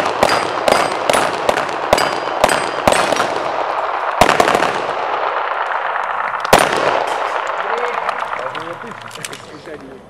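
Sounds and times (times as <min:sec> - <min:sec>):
handgun shots: 0:00.0 - 0:03.4
steel targets ringing: 0:00.2 - 0:01.2, 0:02.0 - 0:03.1.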